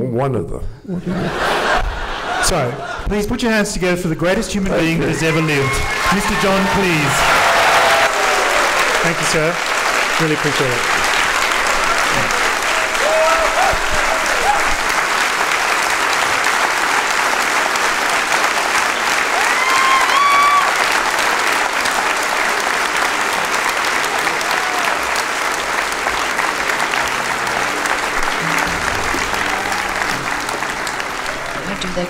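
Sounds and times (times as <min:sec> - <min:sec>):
audience applauding: 0:01.2 - 0:03.2, 0:04.3 - 0:32.0
high rising call: 0:26.9 - 0:31.8.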